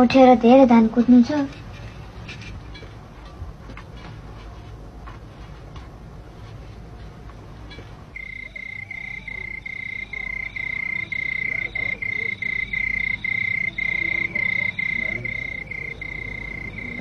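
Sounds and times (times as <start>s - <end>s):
cricket chirping: 8.2s - 17.0s.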